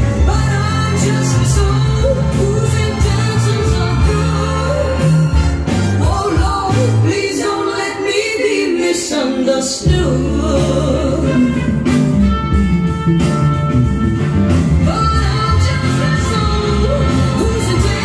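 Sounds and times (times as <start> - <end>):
song with singing voice: 0.0 - 12.5, 14.5 - 18.0.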